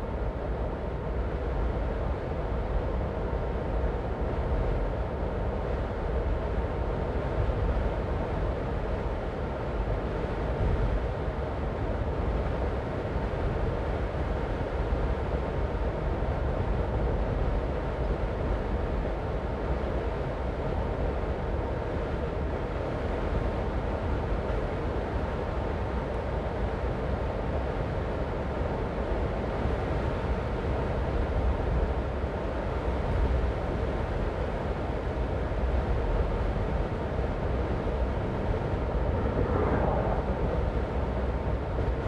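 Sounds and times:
car driving on road: 36.3s - 42.0s.

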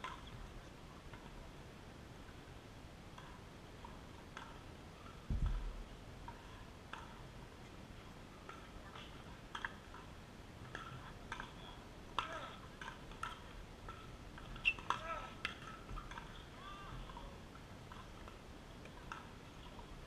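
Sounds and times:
dull low thump: 5.3s - 5.8s.

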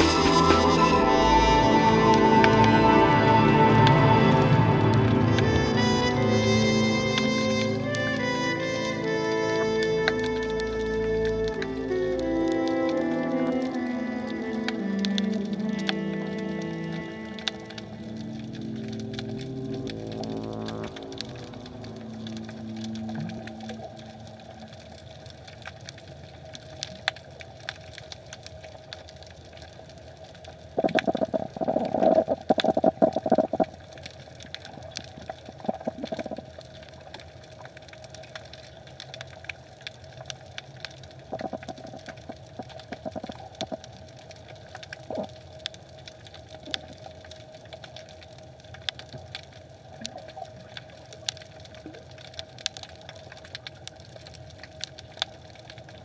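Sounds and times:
low underwater hum: 0.0s - 56.0s.

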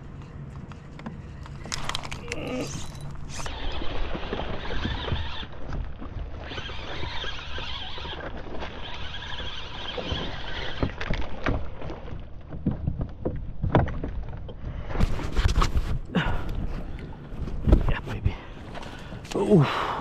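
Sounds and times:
water against kayak hull: 2.8s - 20.0s.

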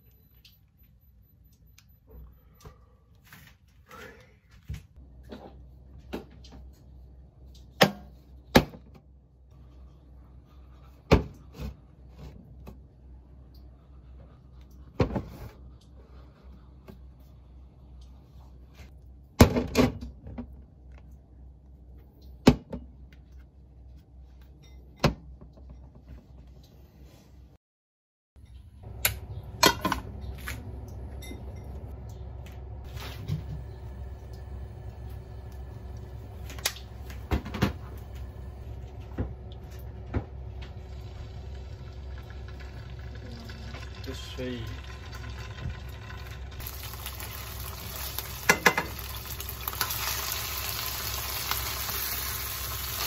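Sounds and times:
low steady hum: 28.4s - 53.0s.

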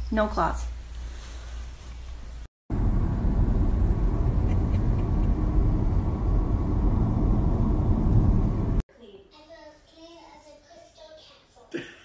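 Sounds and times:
road and wind noise: 2.7s - 8.8s.

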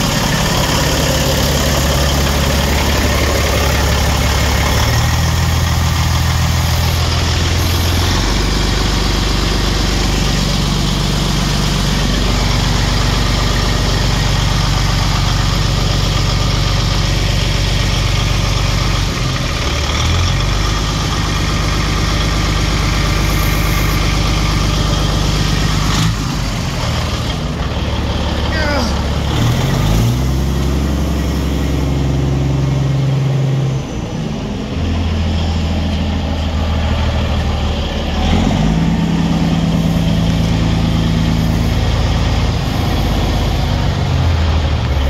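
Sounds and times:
diesel truck engine idling: 0.0s - 45.0s.

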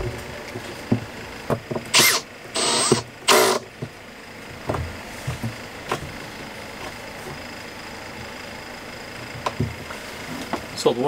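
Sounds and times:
drill driving screws into plywood: 1.9s - 3.6s.

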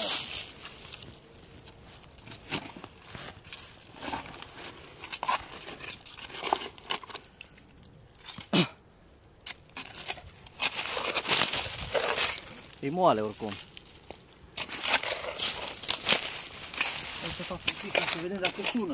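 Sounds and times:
shovel digging into soil and leaves: 0.0s - 1.2s, 9.5s - 18.9s.

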